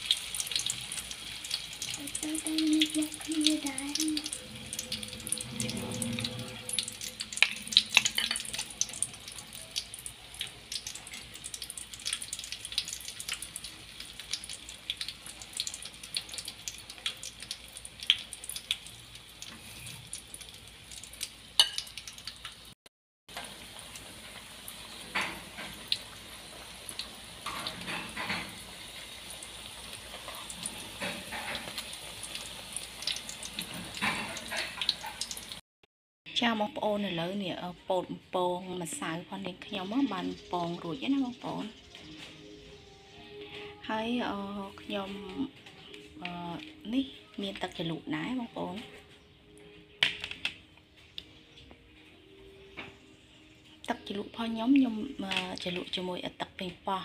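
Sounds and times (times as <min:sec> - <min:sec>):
batter sizzling in hot oil: 0:00.0 - 0:35.6, 0:38.9 - 0:42.9.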